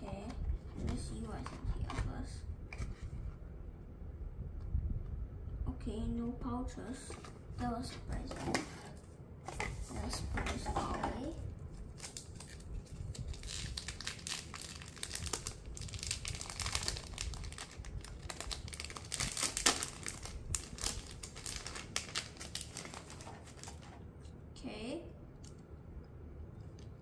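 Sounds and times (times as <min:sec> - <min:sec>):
plastic bag crinkling: 0:11.8 - 0:24.0.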